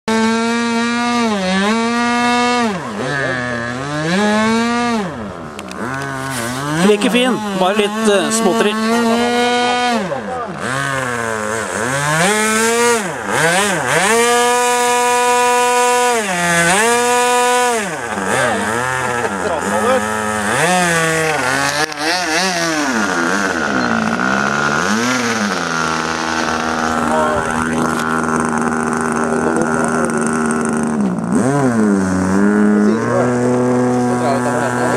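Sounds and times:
model plane engine at high revs: 0:00.1 - 0:34.9.

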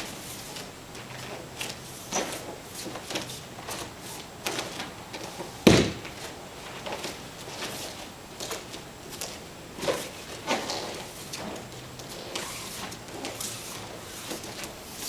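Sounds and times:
feet and bodies thumping mat: 0:00.0 - 0:14.8
body thud on mat: 0:05.6 - 0:06.3.

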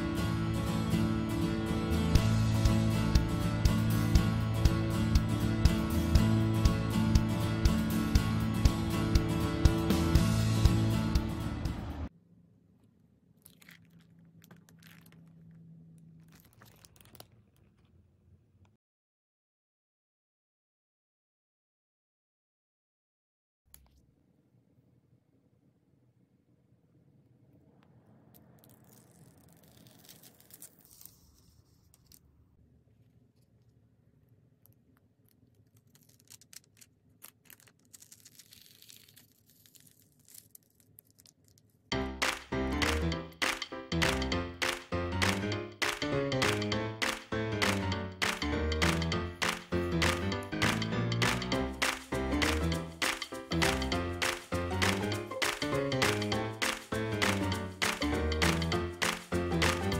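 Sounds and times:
background music: 0:00.0 - 0:12.1, 0:41.9 - 0:59.9
plastic film being peeled: 0:28.6 - 0:32.2, 0:35.4 - 0:41.8
plastic package rustling: 0:35.4 - 0:41.8.

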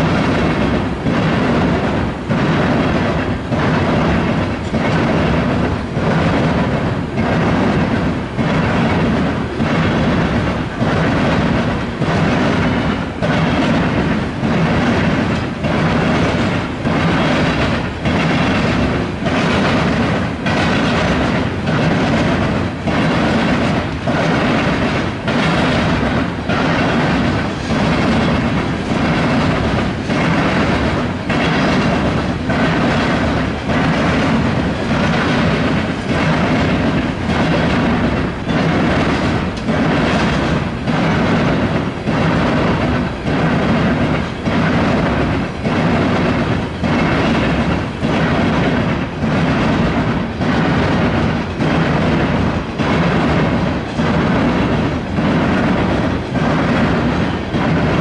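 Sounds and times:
heavy train rumble: 0:00.0 - 0:58.0
train wheels clattering over rails: 0:00.0 - 0:58.0.

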